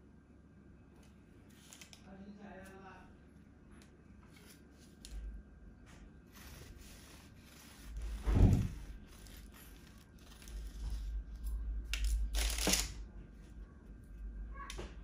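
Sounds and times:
thump: 8.2 - 8.8.

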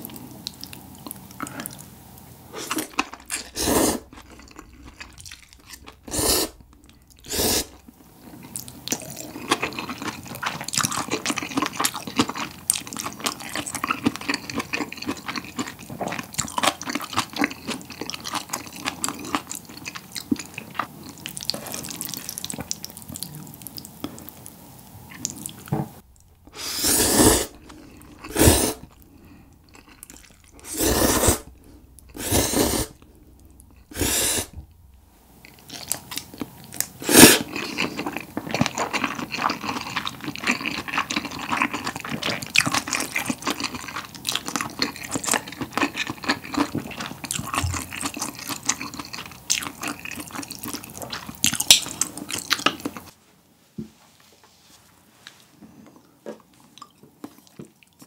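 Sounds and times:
wet chewing with clicks: 0.0 - 1.9, 27.5 - 30.6, 35.4 - 53.1, 55.9 - 58.0
person slurping noodles: 2.5 - 6.6, 7.2 - 7.8, 26.5 - 33.1, 33.8 - 34.6, 37.0 - 37.8.

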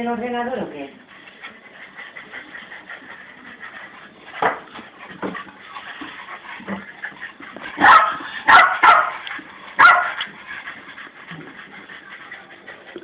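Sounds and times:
dog barking sharply: 7.8 - 9.1, 9.8 - 10.2.

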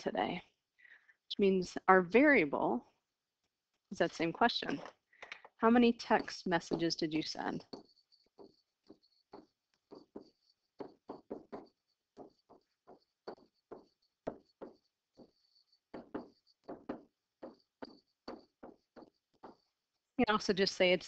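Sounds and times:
stylus tapping on tablet screen: 4.7 - 20.0.

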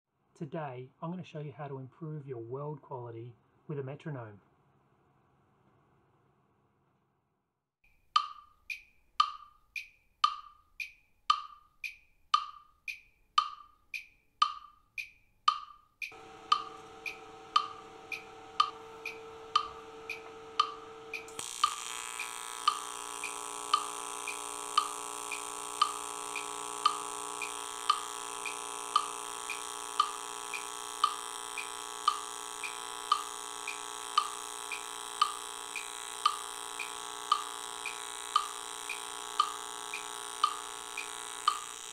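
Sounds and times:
metronome clicking: 8.0 - 41.9
welding arc buzzing: 16.1 - 41.9
faint steady hum: 16.2 - 41.9.

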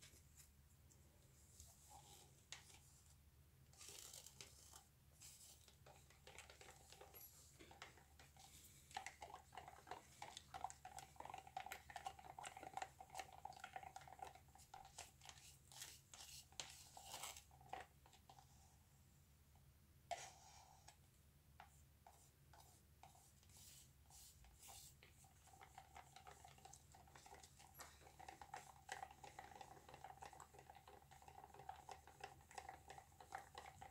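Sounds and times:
stick stirring paint in plastic cup: 1.4 - 18.7, 20.1 - 21.0, 21.6 - 33.9
plastic cups crinkling and clicking: 3.8 - 18.4, 23.5 - 33.9.

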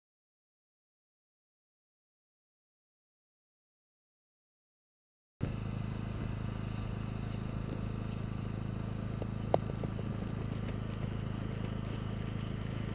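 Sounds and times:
low engine hum: 5.4 - 12.9.

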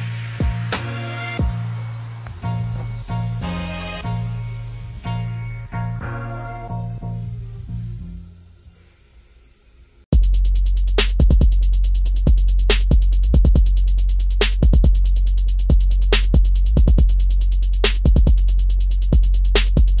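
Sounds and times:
electronic beat with deep bass: 0.0 - 8.2, 10.1 - 20.0
rapid high ticking percussion: 0.0 - 8.3, 10.1 - 20.0
faint quieter music: 0.0 - 10.1.

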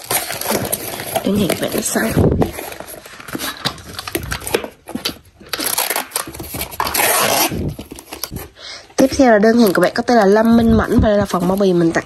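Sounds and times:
packing tape screeching off dispenser: 5.5 - 8.3.

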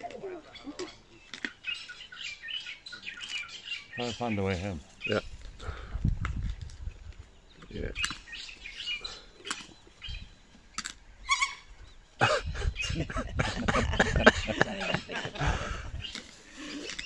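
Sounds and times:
animal chirping calls: 11.2 - 13.1.

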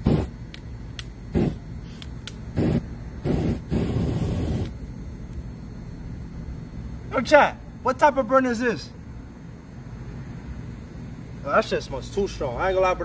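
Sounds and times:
burning spray hissing bursts: 0.0 - 0.4, 1.3 - 4.8.

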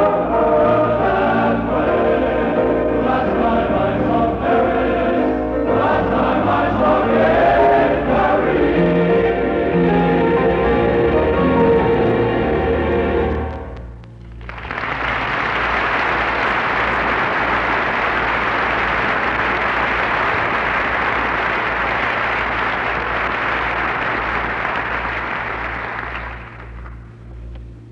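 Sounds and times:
audience applauding: 14.2 - 27.1.

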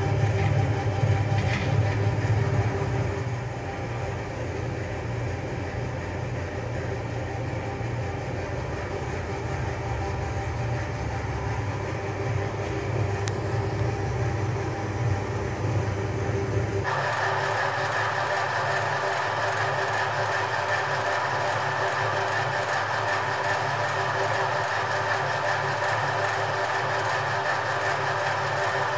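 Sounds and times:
machinery humming and rumbling: 0.0 - 28.9.

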